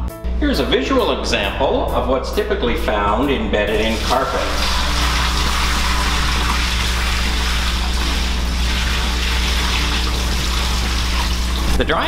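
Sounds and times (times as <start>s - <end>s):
steady low hum: 0.2s - 12.0s
water gushing into a sink: 3.8s - 11.8s.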